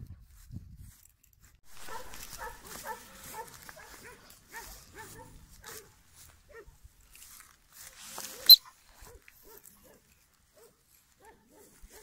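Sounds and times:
rustling: 1.7 - 6.4
dog barking faintly: 1.7 - 6.8, 8.2 - 12.0.

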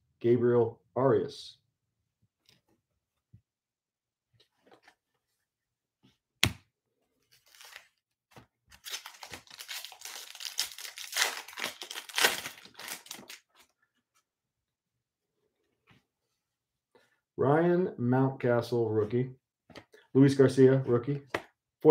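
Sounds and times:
foil wrapper tearing and crinkling: 7.4 - 7.9, 8.7 - 13.5.

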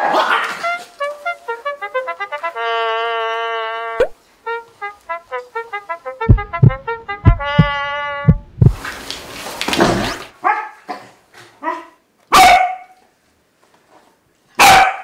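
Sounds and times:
dog barking: 10.4 - 11.0, 11.6 - 13.0, 14.6 - 15.0.

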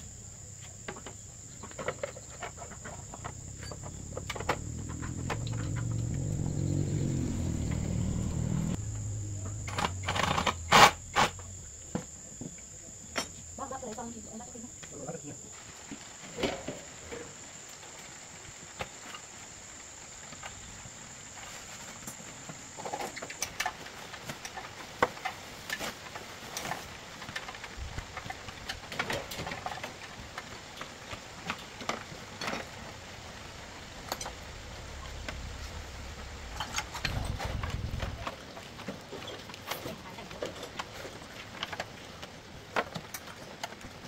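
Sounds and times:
high insect trill: 0.0 - 30.9.

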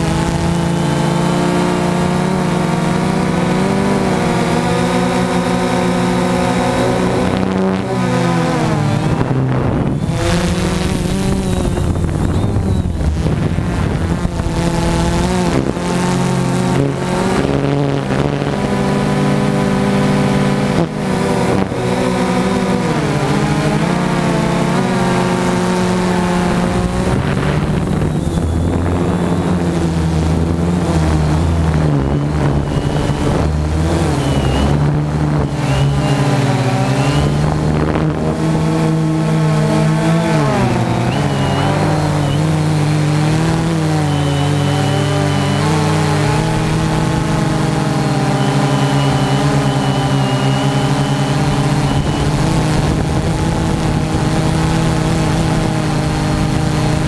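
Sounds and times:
buzzing motors and propellers: 0.0 - 57.0.

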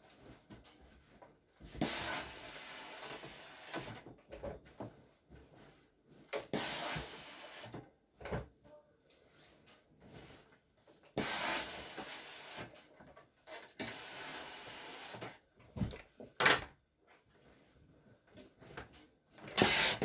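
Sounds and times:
steam iron hissing: 1.8 - 4.0, 6.5 - 7.7, 11.2 - 12.7, 13.8 - 15.2, 19.5 - 20.0.

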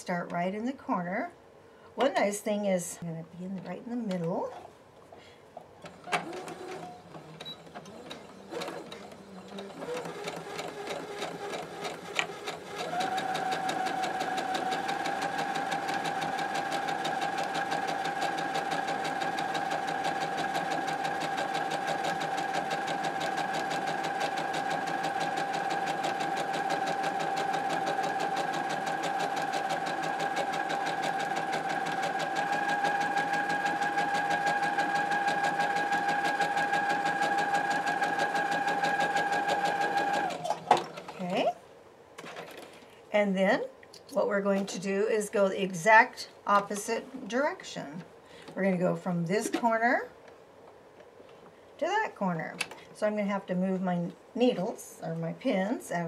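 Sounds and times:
electric sewing machine stitching: 5.8 - 41.4.

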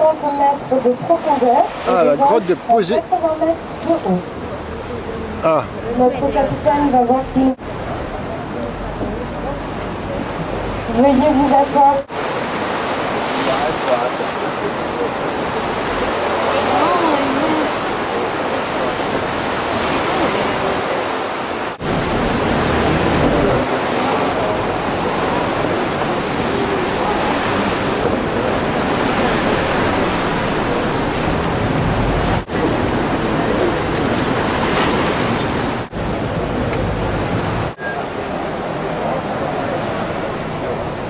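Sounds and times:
sea water rushing around boat: 0.0 - 41.0
wind noise on microphone: 17.4 - 41.0.

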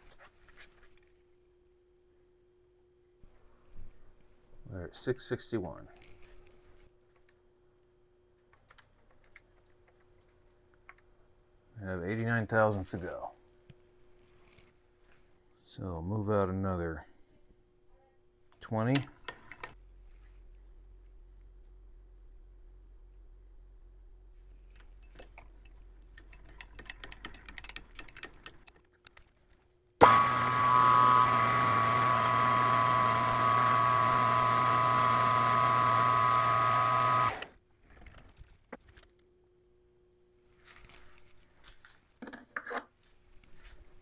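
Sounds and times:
metal lathe whining: 30.0 - 37.4.

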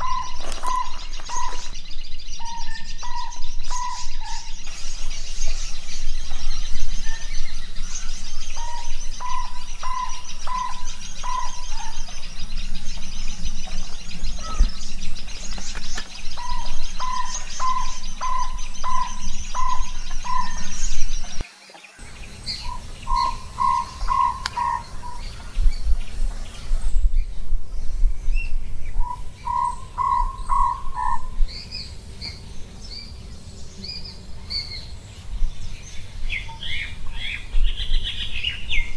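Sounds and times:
fast high twittering: 22.0 - 26.8
owlet calling short notes: 22.4 - 25.2.

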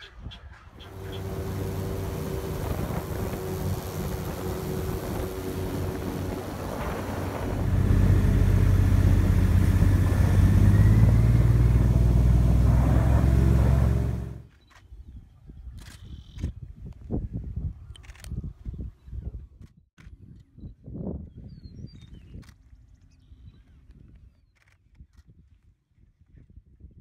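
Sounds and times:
airboat engine and propeller drone: 0.8 - 14.5.

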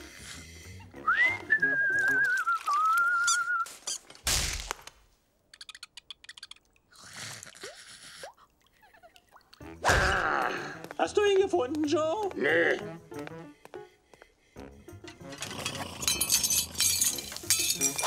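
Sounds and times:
wavering whistled tune: 1.0 - 3.7.

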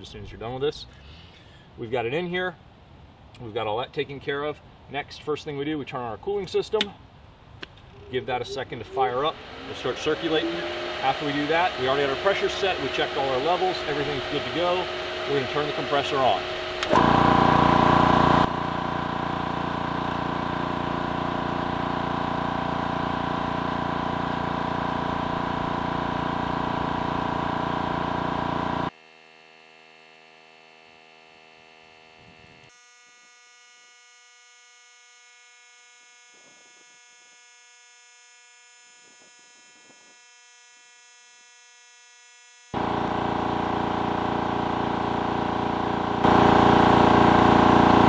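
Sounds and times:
air compressor running: 7.8 - 29.0, 42.7 - 48.0.

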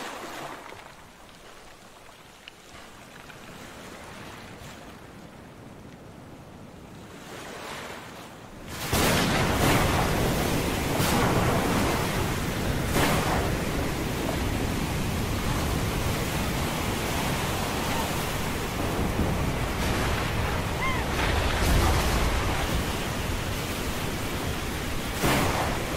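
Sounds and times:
sharp wave splashes: 0.0 - 1.1, 8.7 - 25.9
waves crashing: 0.0 - 5.8, 6.5 - 25.9
wind: 0.0 - 25.9.

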